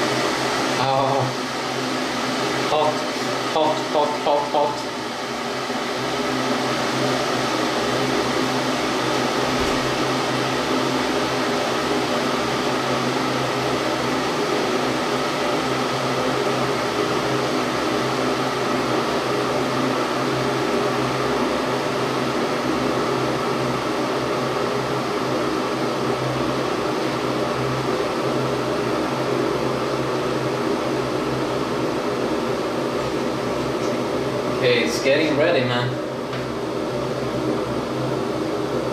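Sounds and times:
low electrical hum: 0.0 - 38.9
water heater hissing: 0.0 - 38.9.

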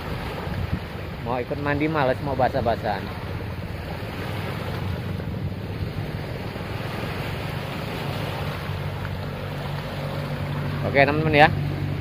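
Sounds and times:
waves breaking on shore: 0.0 - 12.0
wind buffeting microphone: 0.0 - 12.0
steady low drone: 3.2 - 12.0.

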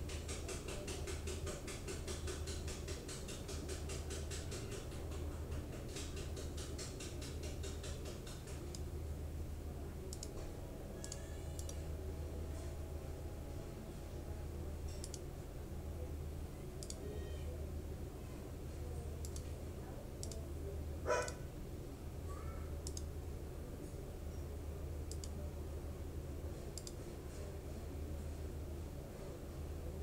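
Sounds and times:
steady low hum: 0.0 - 30.0
computer mouse clicking: 0.1 - 8.9, 10.1 - 11.9, 14.9 - 15.3, 16.8 - 17.0, 19.2 - 19.5, 20.2 - 20.5, 22.8 - 23.1, 25.0 - 25.4, 26.7 - 27.0.

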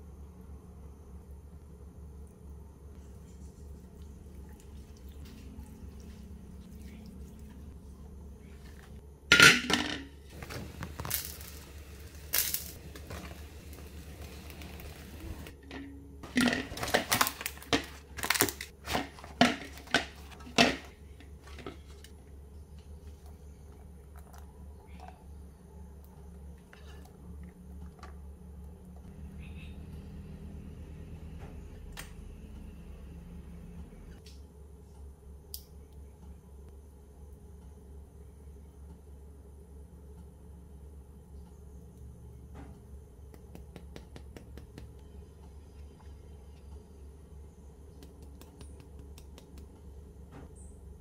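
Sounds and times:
gas flame hissing: 10.3 - 15.6.

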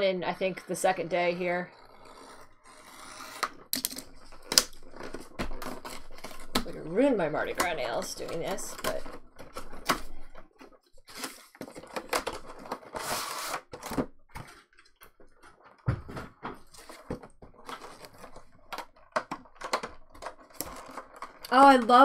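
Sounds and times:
cardboard tearing: 1.7 - 6.7, 11.0 - 14.1
plastic tray crinkling and clicking: 3.7 - 15.8, 16.6 - 22.0.

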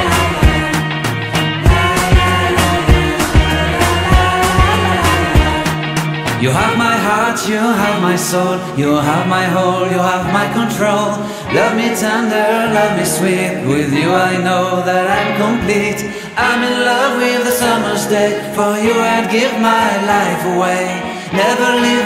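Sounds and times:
song with singing and instruments: 0.0 - 22.0.

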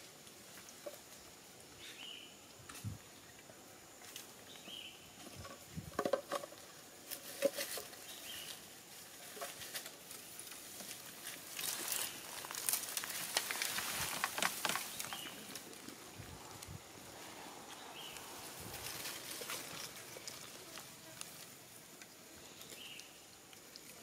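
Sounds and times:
dry leaves rustling and crackling: 7.0 - 23.2.

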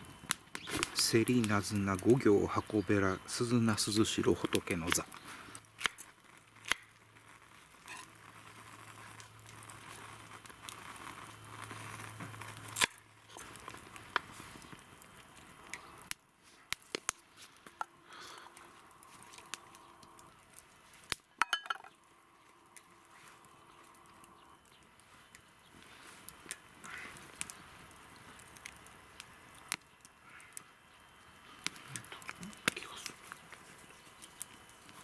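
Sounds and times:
faint hiss: 0.0 - 35.0
metal pot being handled: 21.4 - 21.9.

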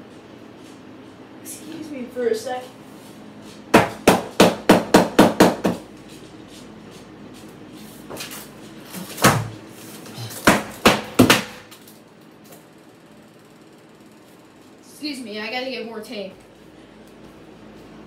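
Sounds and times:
hammer driving a nail: 3.8 - 5.8, 10.4 - 11.6.

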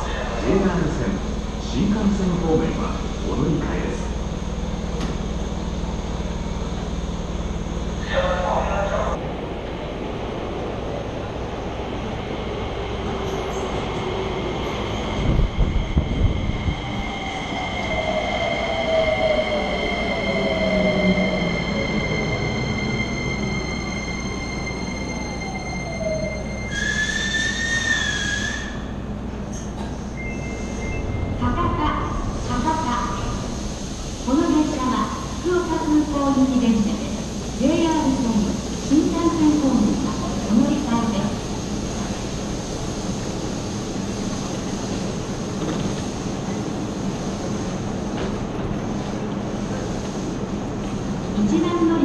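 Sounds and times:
subway train humming and hissing: 0.0 - 52.0
high wavering brake squeal: 16.4 - 29.0, 29.6 - 31.5.

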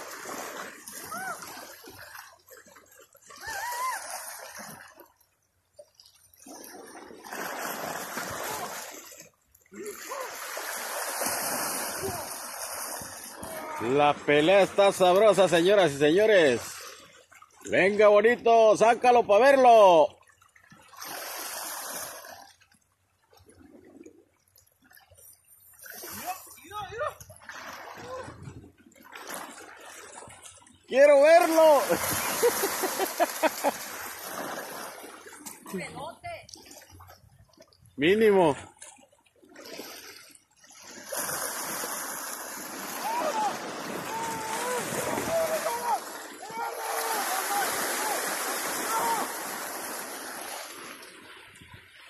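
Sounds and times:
waves washing over rocks: 0.0 - 2.0, 10.0 - 16.8, 30.9 - 35.8, 40.8 - 51.6.

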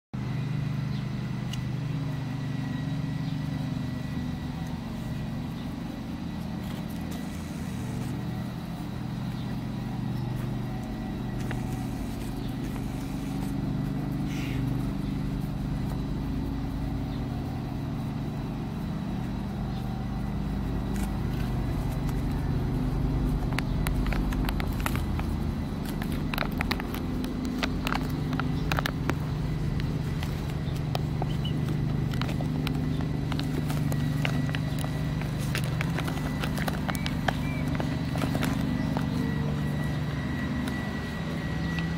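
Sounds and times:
low motor hum: 0.2 - 41.9.

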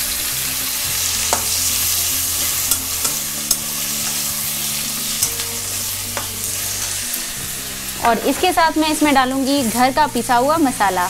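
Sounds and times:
vegetables sizzling in oil: 0.0 - 11.0
metal spatula scraping a pan: 1.0 - 9.9.

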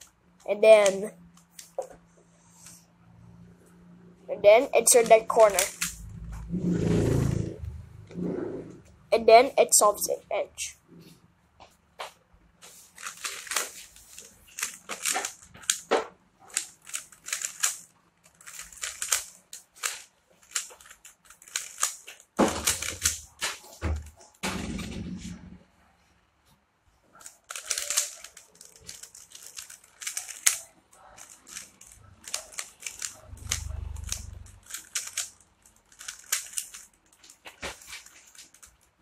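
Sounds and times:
puzzle cube clicking: 5.0 - 6.1, 16.5 - 23.2, 27.2 - 37.3.

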